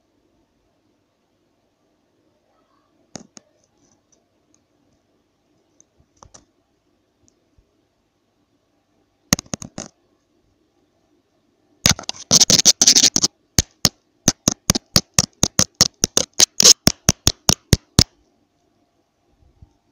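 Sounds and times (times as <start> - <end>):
sharp clicks and taps: 9.3 - 10.0, 11.8 - 18.2.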